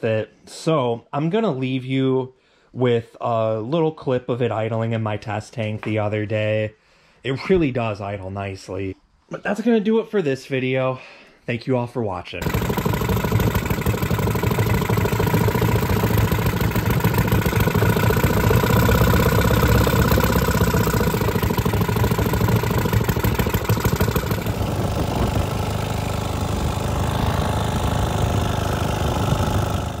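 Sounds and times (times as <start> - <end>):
outboard motor idling: 12.4 - 30.0.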